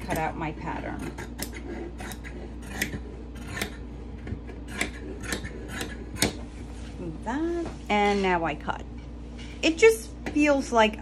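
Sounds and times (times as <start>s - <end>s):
shears snipping fabric: 0.0s - 6.6s.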